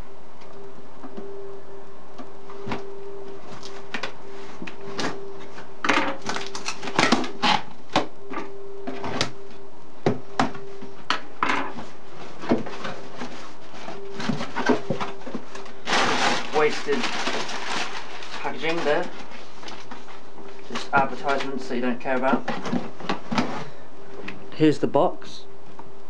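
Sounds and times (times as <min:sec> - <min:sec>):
household boiler noise: 0:00.0 - 0:25.1
low hum: 0:00.0 - 0:26.0
crumpled paper rustling: 0:02.6 - 0:07.8, 0:11.7 - 0:23.8
packing tape peeled off: 0:06.2 - 0:07.8, 0:15.5 - 0:20.0.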